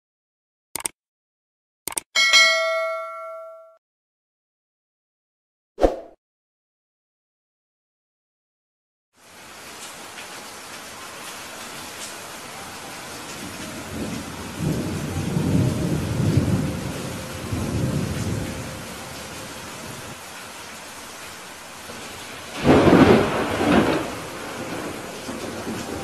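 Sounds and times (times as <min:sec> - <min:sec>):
heavy rain: 0:09.2 - 0:26.0
rolling thunder rumble: 0:13.4 - 0:20.2, 0:22.5 - 0:26.0
sharp thunderclap: 0:13.9 - 0:18.5, 0:22.6 - 0:26.0.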